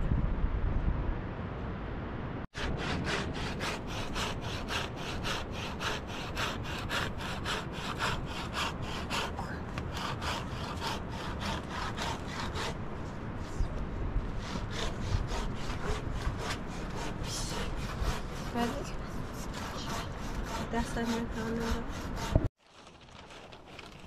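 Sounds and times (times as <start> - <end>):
hand saw cutting wood: 2.6 - 12.8, 14.4 - 22.5.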